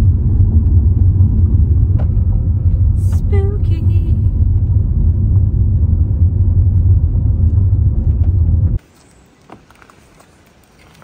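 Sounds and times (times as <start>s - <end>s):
car cabin rumble while driving: 0.0s - 8.8s.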